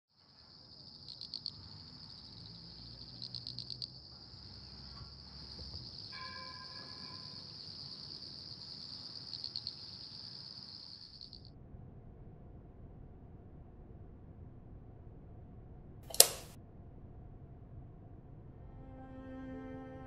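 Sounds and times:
crickets chirping: 0.1 - 11.5.

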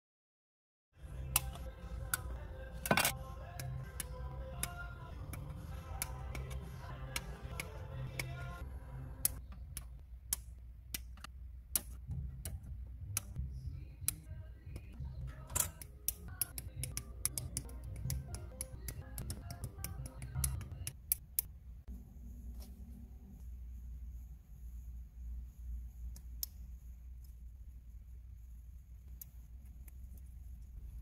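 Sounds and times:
soft background music: 1.0 - 9.4, 11.8 - 21.0.

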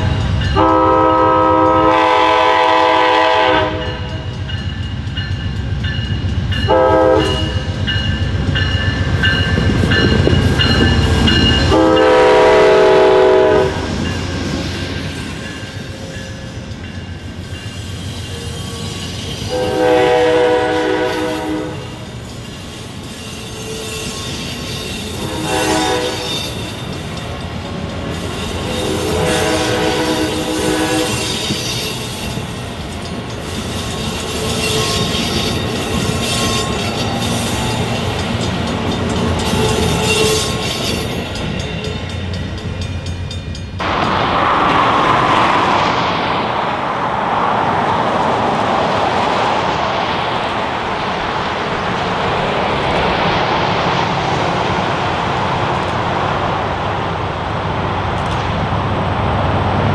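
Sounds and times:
train wheels clicking and squealing: 0.0 - 1.1, 3.7 - 13.2, 13.8 - 44.4
train horn blasts: 0.1 - 4.3, 6.6 - 7.7, 11.6 - 13.9, 18.8 - 22.1, 25.0 - 26.6, 28.4 - 31.6, 39.4 - 41.0
loud rushing noise: 43.8 - 56.8.

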